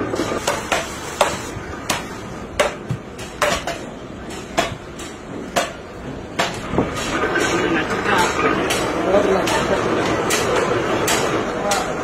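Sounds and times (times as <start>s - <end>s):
hand tool chopping wood: 0.4s - 5.8s.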